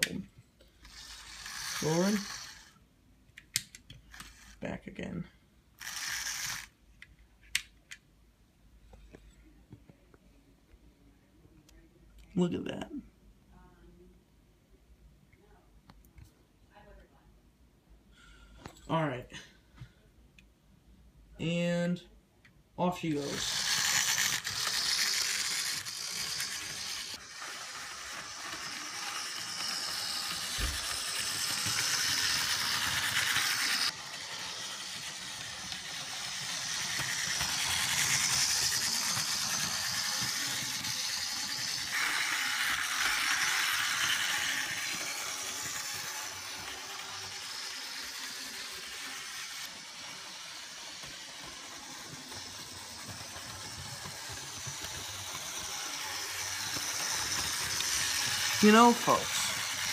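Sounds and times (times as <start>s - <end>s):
model train whirring rattle: 0.7s - 2.8s, 4.0s - 4.6s, 5.8s - 6.8s, 23.2s - 59.9s.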